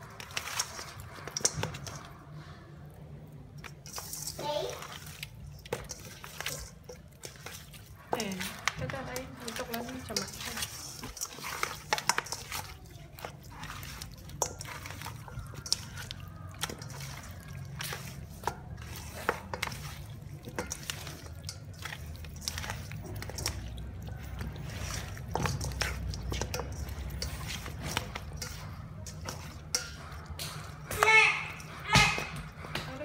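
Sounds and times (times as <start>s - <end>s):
wet squelching of meat: 0.0s - 33.0s.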